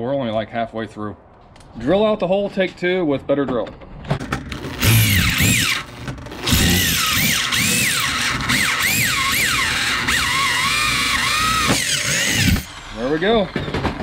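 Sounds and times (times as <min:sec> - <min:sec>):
electric drill whining: 0:04.5 - 0:14.0.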